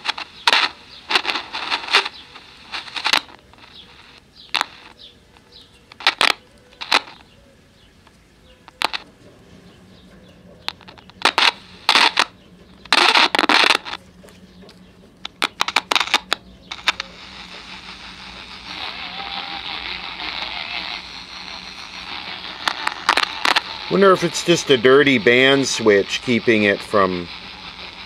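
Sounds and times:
radio static crackling: 0.0 - 28.0
radio static hiss: 0.0 - 28.0.

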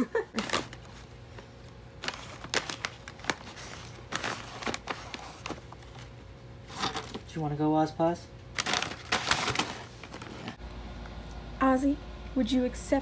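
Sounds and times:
packaging crinkling: 0.3 - 7.3, 8.5 - 10.6.

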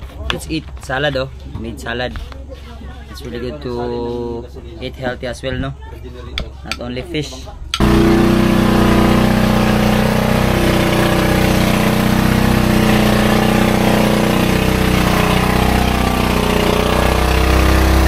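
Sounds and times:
engine running steadily: 7.8 - 18.0.

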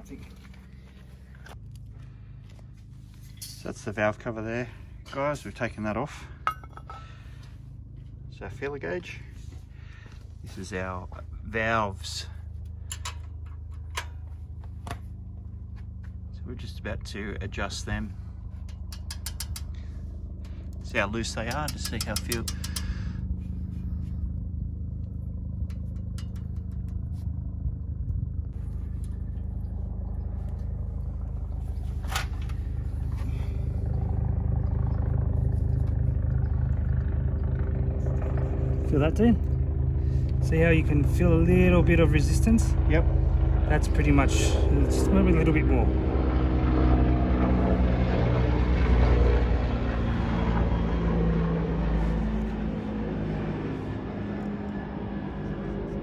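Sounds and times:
engine low pulsing hum: 0.0 - 56.0
metallic clicks of tools: 18.6 - 19.8.

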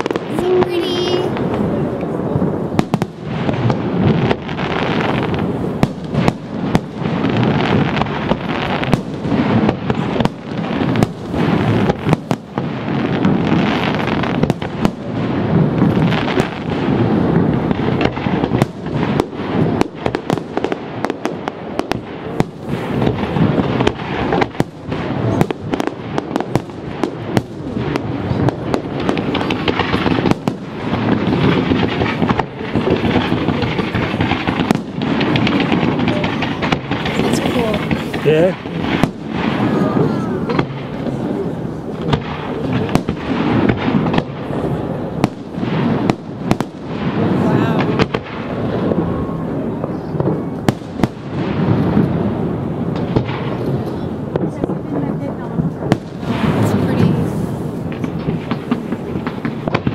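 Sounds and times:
continuous rumble: 0.0 - 59.9
fireworks bangs and booms: 0.0 - 59.9.

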